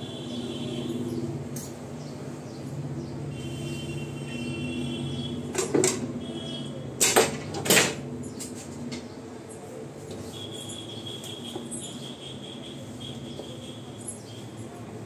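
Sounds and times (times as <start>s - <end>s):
kitchen items knocking and clattering: 7.0s - 9.1s.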